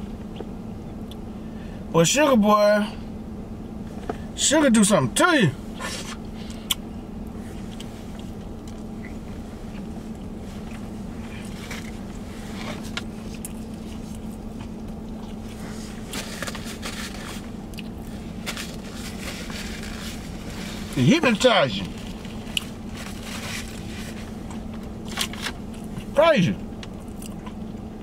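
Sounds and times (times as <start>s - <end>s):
vehicle hum inside cabin: 0.0s - 28.0s
paper napkin handled: 15.5s - 17.5s, 18.1s - 21.0s, 21.9s - 24.4s
chewing clicks: 26.8s - 27.8s.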